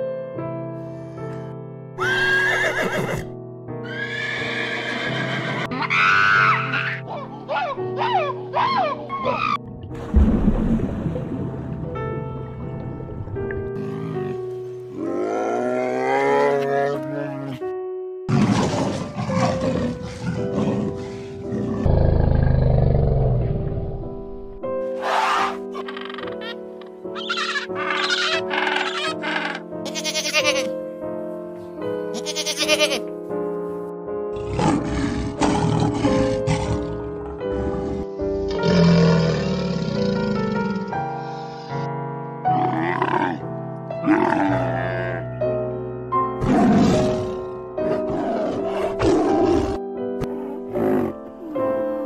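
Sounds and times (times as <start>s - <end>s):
background music: 0.0s - 52.0s
horse whinnying: 2.0s - 7.0s
big cat roaring and growling: 13.8s - 17.6s, 18.3s - 23.9s, 34.3s - 41.0s, 42.5s - 43.4s, 44.0s - 45.4s, 46.4s - 51.9s.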